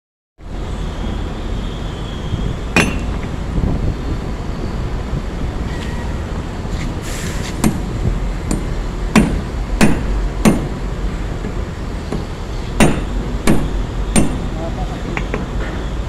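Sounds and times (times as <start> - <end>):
hammer striking steel shackle: 2.8 - 3.3, 8.5 - 10.8, 12.8 - 14.5.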